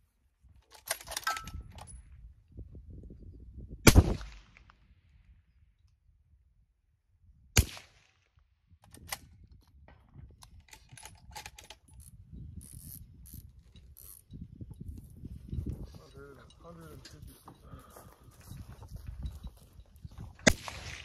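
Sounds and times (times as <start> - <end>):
rifle mechanical clicks and clacks: 0.6 - 2.0, 10.4 - 14.3
suppressed rifle shot: 7.6 - 8.0, 20.4 - 21.0.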